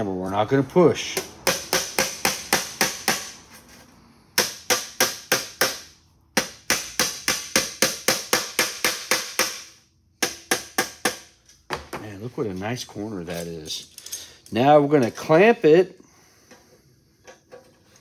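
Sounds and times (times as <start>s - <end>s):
hammer tapping on sheet metal: 1.2s - 3.4s, 4.4s - 11.9s.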